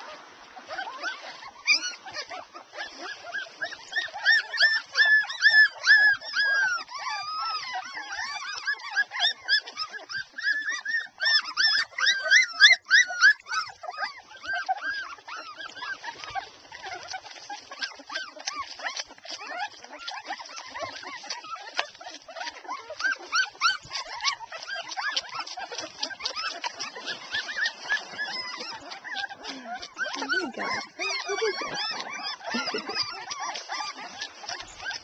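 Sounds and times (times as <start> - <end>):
puppies squeaking and whimpering: 0.0 - 35.0.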